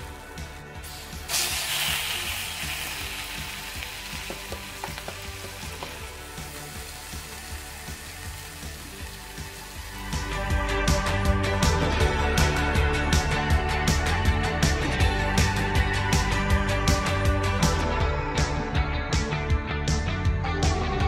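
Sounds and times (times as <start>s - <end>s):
meat sizzling in a skillet: 0.0s - 10.4s.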